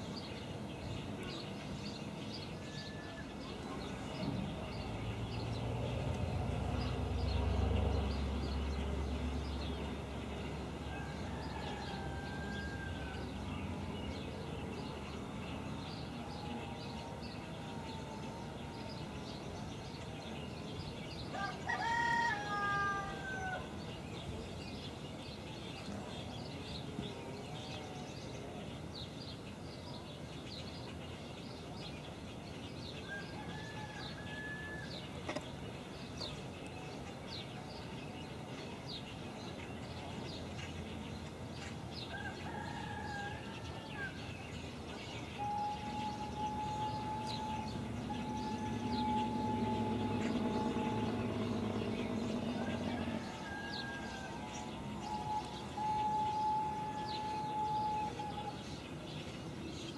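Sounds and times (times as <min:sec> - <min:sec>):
small birds chirping: 0:00.0 - 0:59.9
rooster crowing: 0:10.8 - 0:13.4, 0:21.3 - 0:23.7, 0:33.1 - 0:35.1, 0:42.1 - 0:44.2, 0:45.4 - 0:58.6
steam locomotive whistle: 0:45.4 - 0:53.2, 0:54.3 - 0:58.6.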